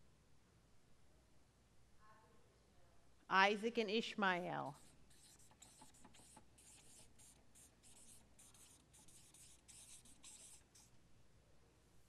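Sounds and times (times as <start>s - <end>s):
marker pen writing on paper: 4.6s - 10.9s.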